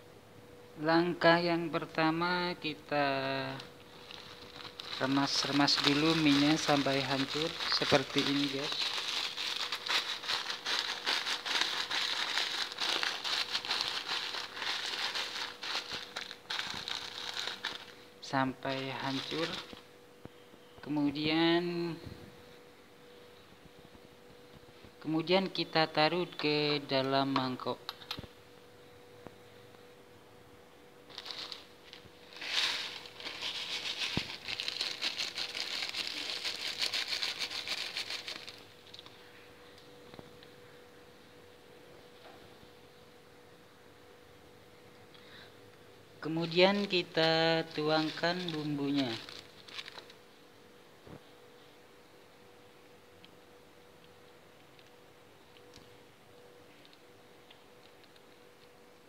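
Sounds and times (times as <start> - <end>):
dry noodles crackling: 3.2 - 19.9, 31.0 - 39.2, 46.2 - 50.3
plastic wrapper crinkling: 3.3 - 19.9, 31.1 - 39.2, 46.3 - 50.2.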